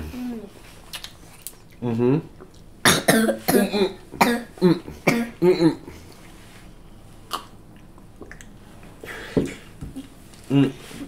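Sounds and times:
man coughing: 2.9s - 5.9s.

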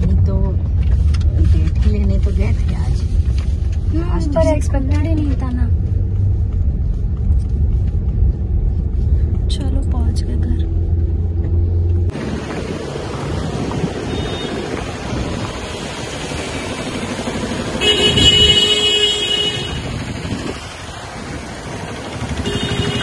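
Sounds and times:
street traffic noise: 0.0s - 23.0s
vehicle horn honking: 14.0s - 14.7s, 17.8s - 20.0s, 22.4s - 23.0s.

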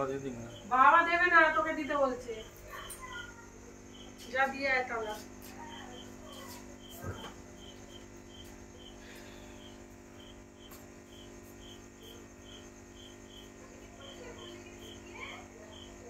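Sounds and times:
aquarium air pump hum: 0.0s - 16.0s.

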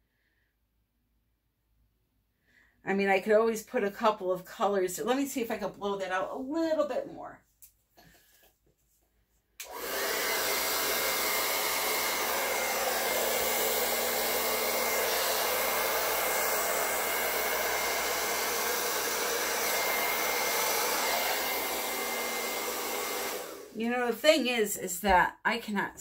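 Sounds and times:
hair dryer running: 9.6s - 24.6s.

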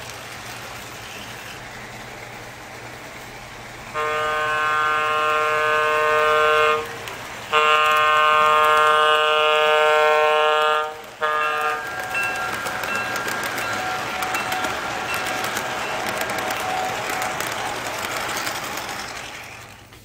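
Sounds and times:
model train rolling on track: 0.0s - 20.0s
model train horn blasts: 3.9s - 17.7s.

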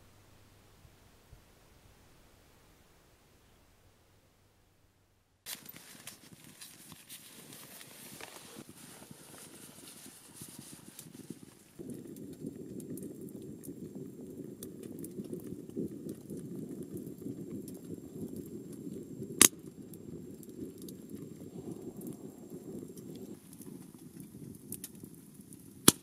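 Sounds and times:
burning wood popping: 5.4s - 26.0s
wood fire crackling in stove: 5.4s - 26.0s.

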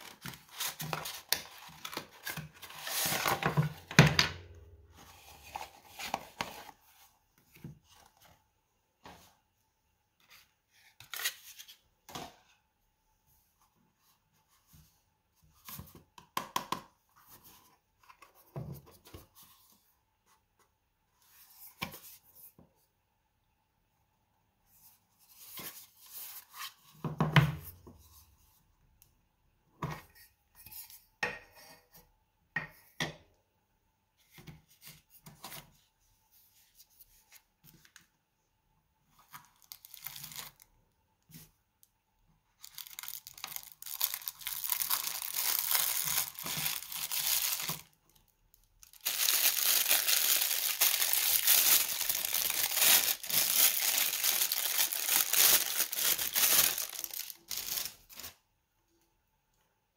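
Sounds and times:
plastic bag crinkling: 39.6s - 40.6s, 42.6s - 48.0s, 48.8s - 58.4s.

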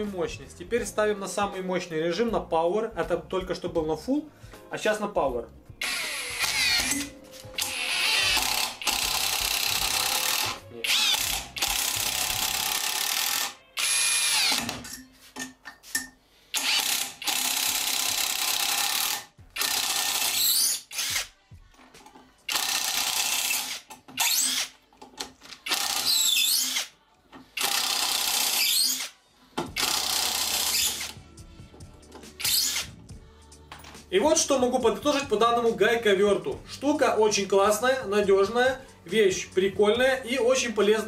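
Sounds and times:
impact wrench hammering screws: 5.8s - 15.0s, 16.6s - 21.3s, 22.0s - 24.8s, 25.6s - 26.9s, 27.6s - 31.2s, 32.2s - 32.9s.

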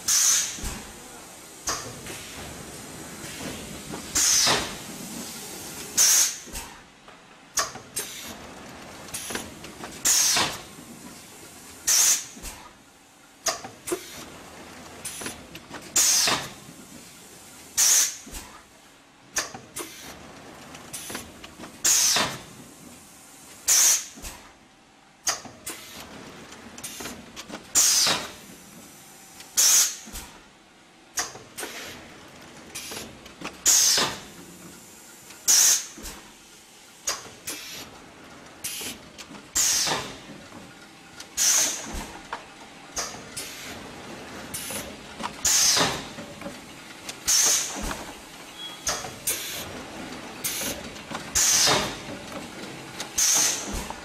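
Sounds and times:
compressed air hisses: 0.1s - 0.7s, 5.3s - 6.7s, 11.9s - 12.4s, 41.4s - 41.9s
pneumatic clicks: 0.1s - 0.9s, 1.6s - 2.3s, 3.2s - 4.8s, 5.8s - 6.8s, 7.5s - 8.4s, 9.1s - 10.7s, 11.8s - 12.7s, 13.4s - 14.3s, 15.0s - 17.0s, 17.8s - 18.6s, 19.3s - 22.6s, 23.6s - 24.5s, 25.2s - 26.1s, 26.8s - 28.8s, 29.4s - 30.4s, 31.1s - 32.0s, 32.7s - 37.9s, 38.6s - 43.8s, 44.5s - 54.0s.

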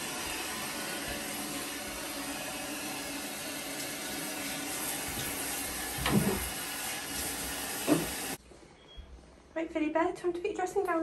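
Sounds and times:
shower head spraying water: 0.0s - 8.4s.

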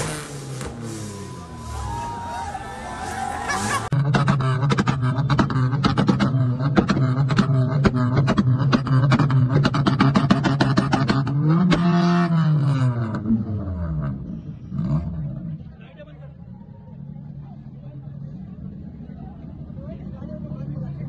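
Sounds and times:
car engine revving high: 0.0s - 15.6s
exhaust pops and bangs: 4.0s - 12.0s.

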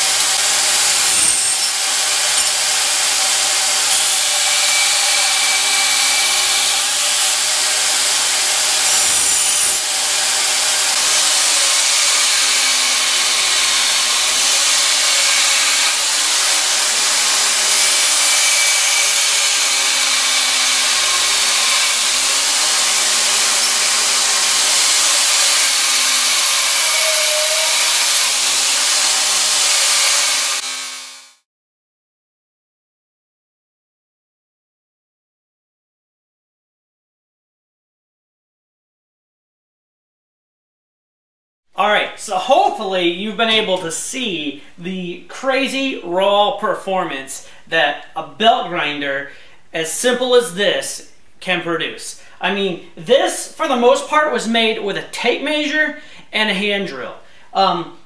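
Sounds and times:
belt grinder grinding steel: 0.0s - 31.4s
motor running at high speed: 19.3s - 31.4s.

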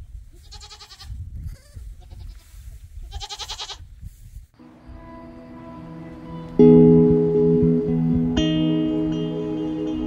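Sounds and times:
goat bleating: 0.4s - 2.5s, 3.1s - 3.8s.

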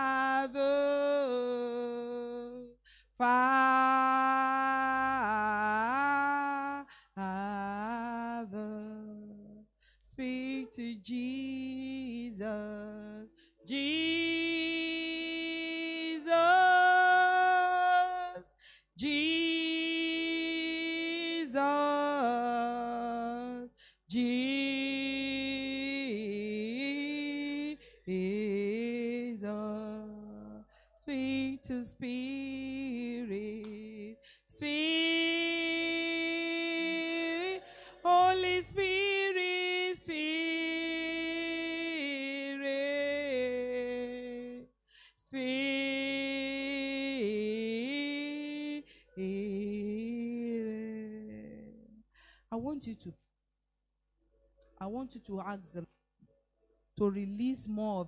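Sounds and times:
person singing unaccompanied: 0.0s - 44.7s.

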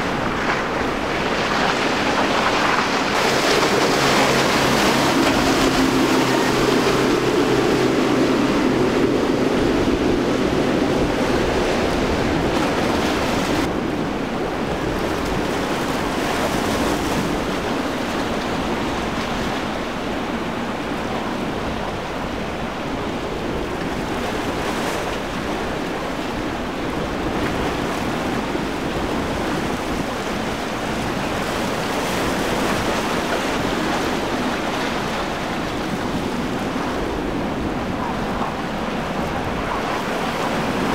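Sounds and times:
hull spray and waves: 0.0s - 40.9s
wind on microphone: 0.0s - 40.9s
outboard motor running: 2.2s - 13.6s.

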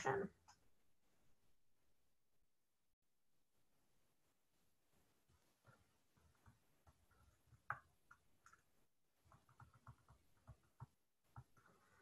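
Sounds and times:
stylus tapping on tablet screen: 5.4s - 12.0s.

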